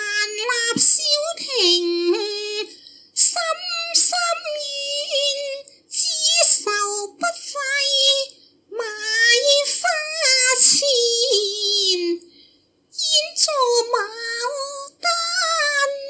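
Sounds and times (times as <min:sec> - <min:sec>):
woman singing opera in high voice: 0:00.0 - 0:12.2, 0:13.0 - 0:16.0.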